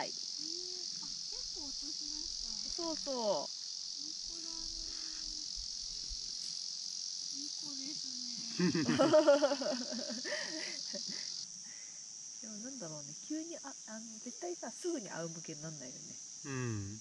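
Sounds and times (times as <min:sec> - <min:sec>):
insects chirring in grass: 0:00.0 - 0:17.0
person's voice: 0:16.5 - 0:17.0.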